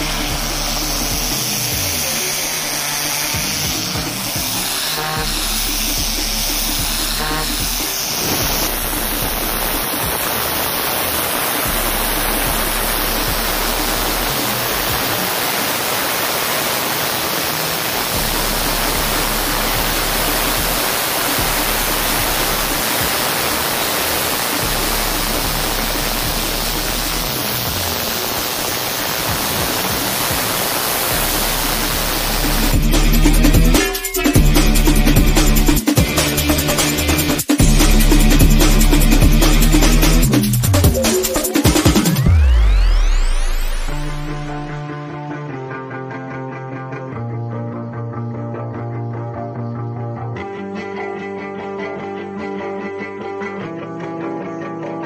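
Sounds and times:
pressure washer spraying concrete: 0.0s - 42.8s
electronic music: 0.0s - 50.6s.

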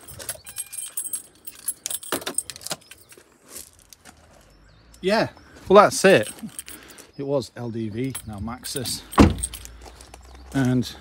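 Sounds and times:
keys jangling: 0.0s - 3.2s, 6.0s - 7.1s, 8.0s - 10.3s
keys knocking: 0.0s - 3.2s, 6.1s - 7.0s, 8.0s - 10.2s.

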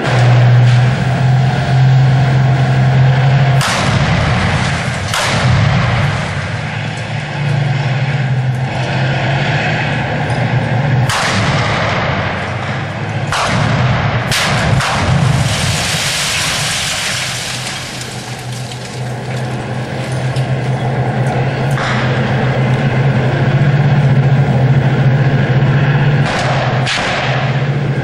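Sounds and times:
steady low hum: 0.0s - 28.0s
dense crackling noise: 3.0s - 28.0s
gunfire and blasts: 3.5s - 6.6s, 11.0s - 15.5s, 26.2s - 27.7s.

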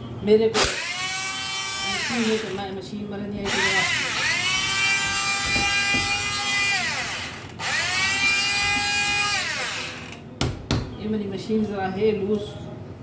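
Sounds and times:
electric hand blender whining: 0.6s - 2.6s, 3.5s - 10.2s.

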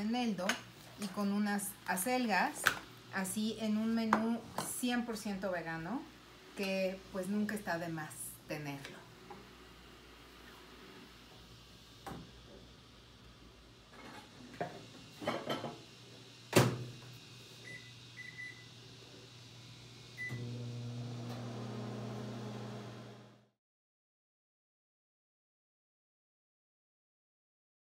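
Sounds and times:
microwave oven humming: 15.6s - 23.5s.

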